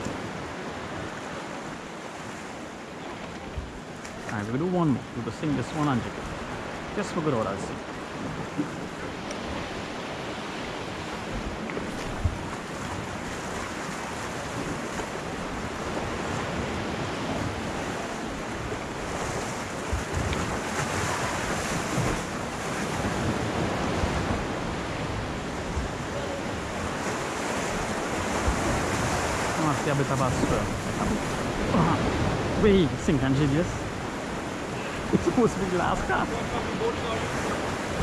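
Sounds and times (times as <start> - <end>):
sea washing against rocks: 0.0 - 38.0
wind buffeting microphone: 7.7 - 38.0.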